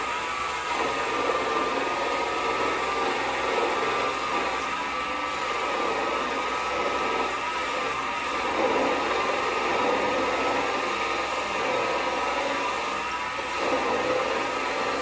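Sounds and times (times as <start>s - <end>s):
lathe motor whine: 0.0s - 15.0s.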